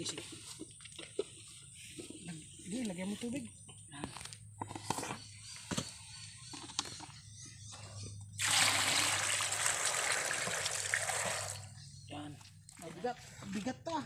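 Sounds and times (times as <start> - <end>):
water pouring into pot: 8.4 - 11.6.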